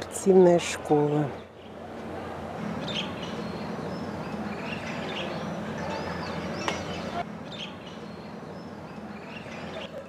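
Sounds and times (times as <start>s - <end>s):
steady low background noise: 0.0s - 10.0s
birds chirping and calling: 2.6s - 10.0s.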